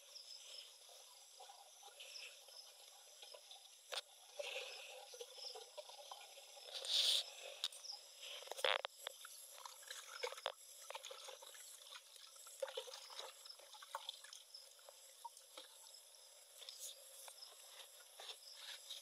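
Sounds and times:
liquid sloshing in bucket: 8.5s - 14.6s.

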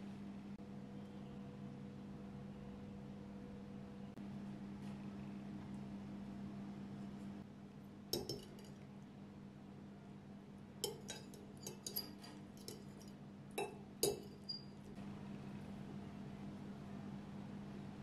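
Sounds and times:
fork clinking and scraping on plate: 10.8s - 14.8s.

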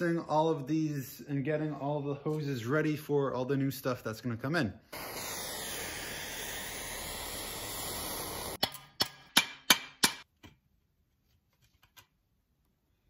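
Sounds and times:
aerosol spray hissing: 4.9s - 8.6s
sharp metal knocks: 8.6s - 10.3s.

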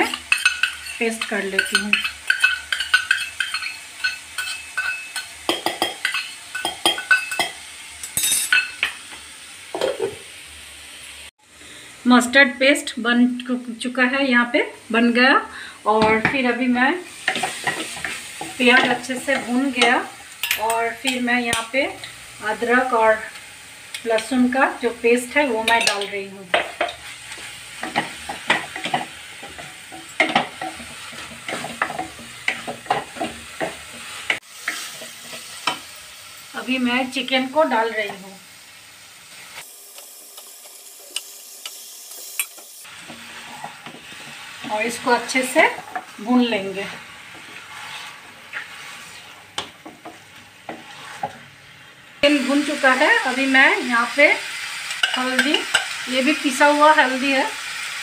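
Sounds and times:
spatula scraping and stirring: 0.0s - 7.5s, 17.1s - 21.2s, 25.6s - 35.9s, 40.4s - 51.6s
faint frying: 0.0s - 58.0s
steel spoon clinking on bowl: 0.1s - 7.5s.

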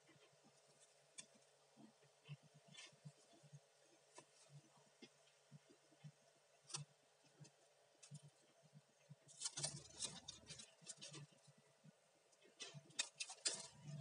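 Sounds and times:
dry leaves and twigs crackling: 9.3s - 11.4s.

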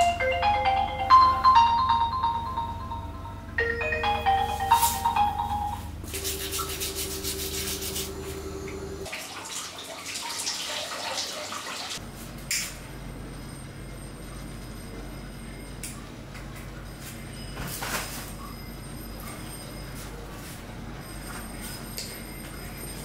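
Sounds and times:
rubbing and scrubbing: 6.1s - 8.2s
shower water running: 6.1s - 12.0s.

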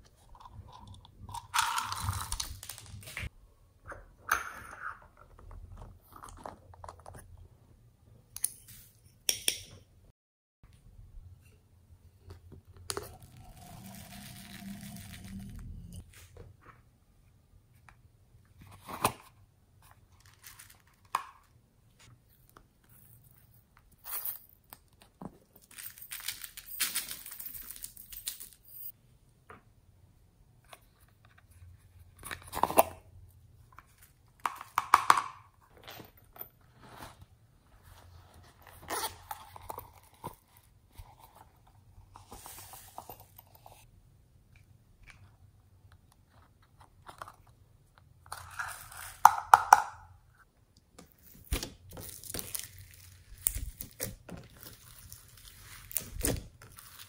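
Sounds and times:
packaging crinkling and tearing: 1.4s - 3.3s, 51.5s - 57.0s.

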